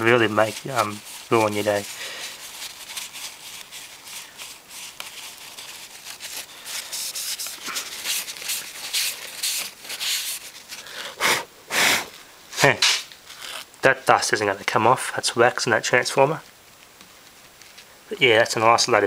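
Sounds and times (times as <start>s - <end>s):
tissue rubbing on glass: 0.0s - 13.7s.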